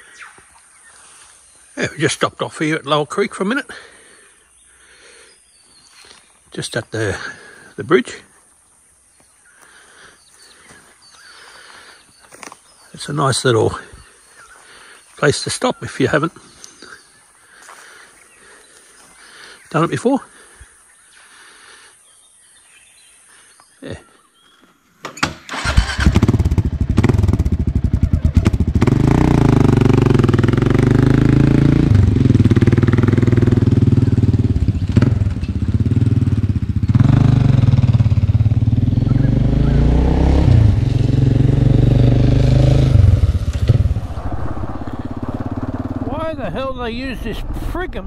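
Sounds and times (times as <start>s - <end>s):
motorcycle engine accelerating: 25.5s - 48.0s.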